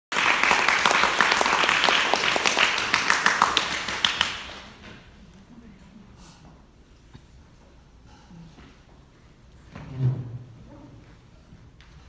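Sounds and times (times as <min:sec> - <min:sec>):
audience applauding: 0:00.1 - 0:04.7.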